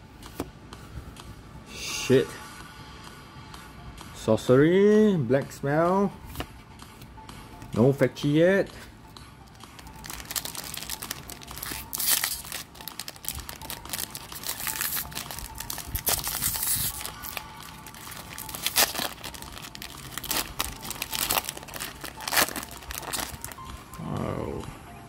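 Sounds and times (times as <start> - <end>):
foil wrapper crinkling and tearing: 9.8 - 23.7.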